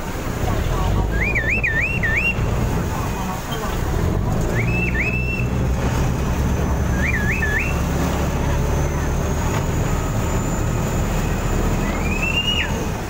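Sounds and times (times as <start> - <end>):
boat engine droning: 0.0 - 13.0
signal whistle blasts: 6.9 - 7.8, 11.8 - 12.8.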